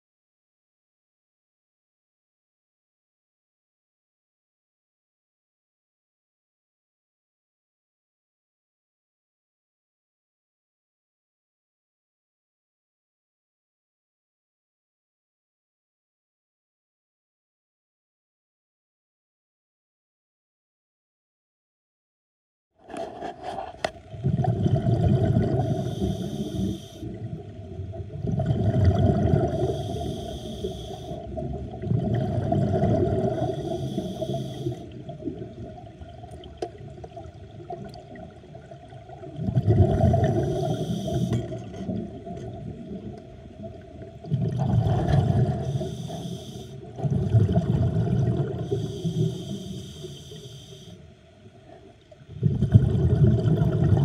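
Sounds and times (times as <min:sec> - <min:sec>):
diver inhaling through regulator: 0:22.9 - 0:27.2, 0:28.6 - 0:31.6, 0:32.2 - 0:35.1, 0:39.9 - 0:41.8, 0:44.7 - 0:47.2, 0:48.2 - 0:51.1
exhaled bubbles underwater: 0:23.2 - 0:50.9, 0:51.5 - 0:54.0.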